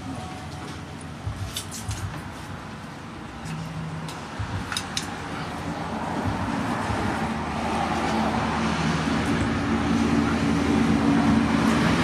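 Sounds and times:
sharp metallic clicks: 0:04.1 - 0:05.2.

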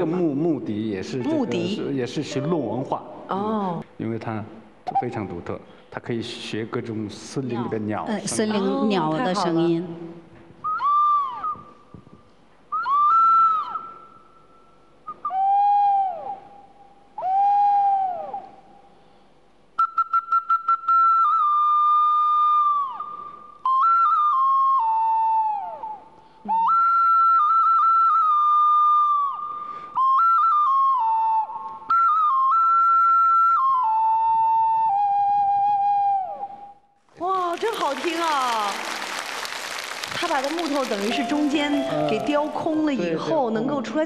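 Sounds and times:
wooden flute imitating birds: 0:10.6 - 0:18.8.

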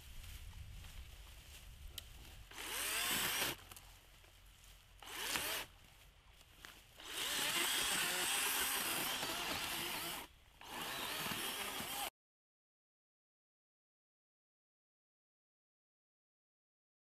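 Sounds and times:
chainsaw cutting brush: 0:02.2 - 0:04.0, 0:05.0 - 0:06.0, 0:06.6 - 0:12.1.

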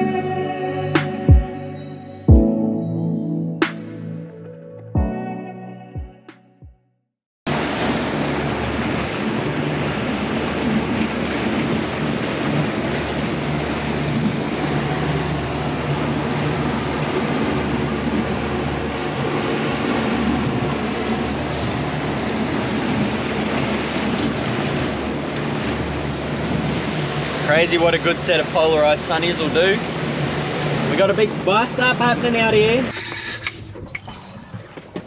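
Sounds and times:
boat engine drone: 0:00.0 - 0:06.0, 0:07.5 - 0:35.0
water against boat hull: 0:07.5 - 0:35.0.

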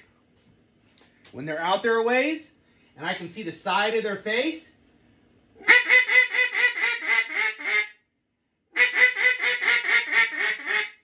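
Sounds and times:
duck call quacks: 0:05.6 - 0:08.0, 0:08.8 - 0:11.0.

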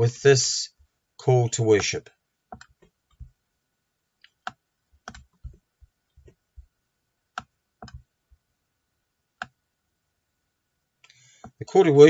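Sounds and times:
faint high hum: 0:00.0 - 0:12.0.

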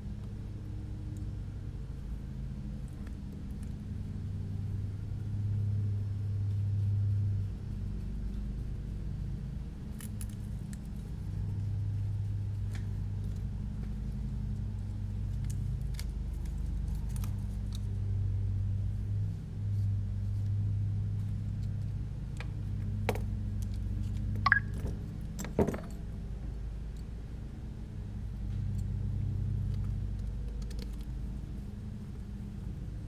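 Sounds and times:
steady low hum: 0:00.0 - 0:33.0
metallic clicks of small parts: 0:29.7 - 0:31.1.

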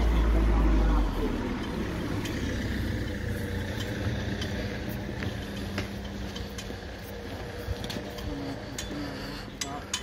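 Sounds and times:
low outdoor rumble: 0:00.0 - 0:10.0
steady hum: 0:01.9 - 0:10.0
footsteps on pavement: 0:03.3 - 0:09.5.

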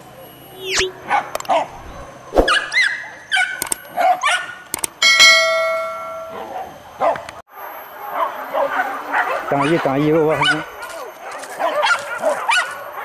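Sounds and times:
dogs yelping and barking: 0:01.0 - 0:04.7, 0:08.1 - 0:13.0
loud ringing tone: 0:05.0 - 0:06.5.

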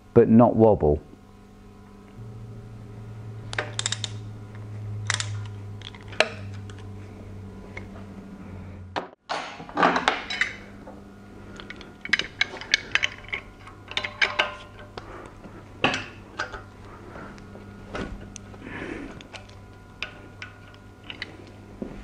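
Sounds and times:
low steady hum: 0:00.0 - 0:22.0
socket ratchet clicking: 0:03.5 - 0:04.2.

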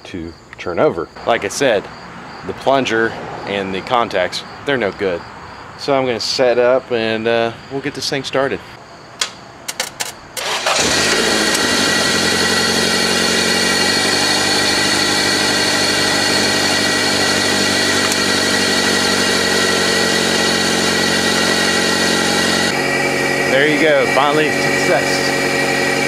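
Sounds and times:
sharp clicks: 0:09.2 - 0:10.4
car engine cranking and running: 0:09.7 - 0:26.0.

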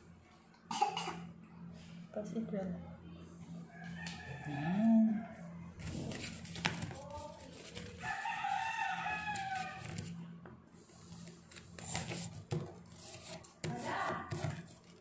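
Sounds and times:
rooster crowing: 0:03.7 - 0:05.6, 0:08.0 - 0:10.0
paper crinkling and clicks: 0:05.8 - 0:10.2.

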